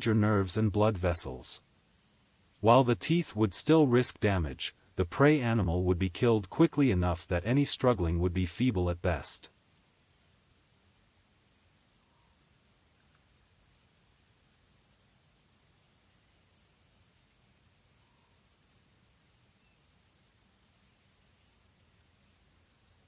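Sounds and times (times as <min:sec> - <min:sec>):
insect chirping: 0:00.0 - 0:23.0
low background hum: 0:02.6 - 0:09.5.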